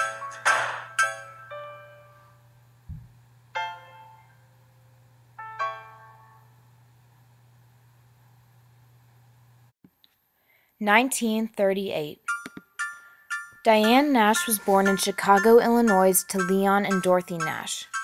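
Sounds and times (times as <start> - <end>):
keyboard notes and chords: 0.0 - 2.2, 12.3 - 18.0
low thump: 2.9 - 3.2.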